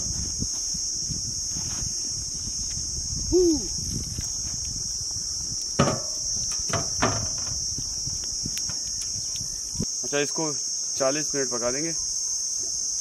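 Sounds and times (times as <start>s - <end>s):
crickets chirring: 0.0s - 13.0s
stone knocking on metal lid: 5.8s - 7.5s.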